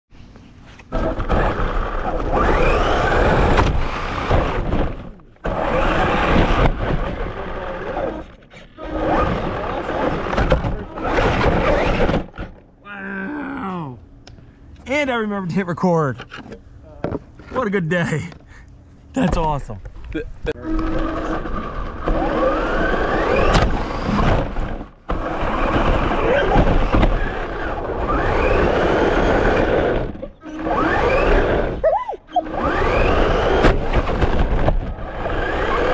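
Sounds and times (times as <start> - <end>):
rc car motor whine: 0.9 - 12.6, 20.5 - 31.8, 32.4 - 35.9.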